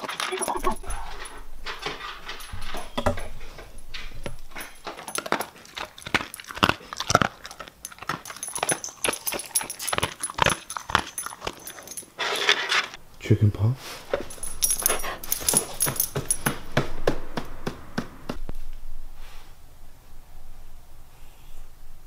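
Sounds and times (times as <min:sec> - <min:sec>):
dog crunching dry kibble: 0:00.0 - 0:12.6
collar tags jingling: 0:00.0 - 0:12.8, 0:13.9 - 0:16.8.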